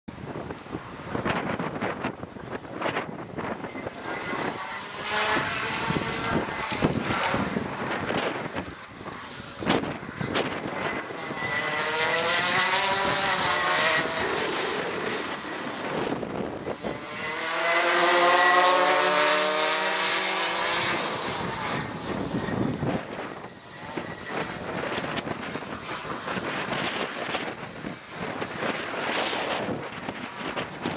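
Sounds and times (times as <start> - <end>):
kart engines revving past: 3.8 - 26.0.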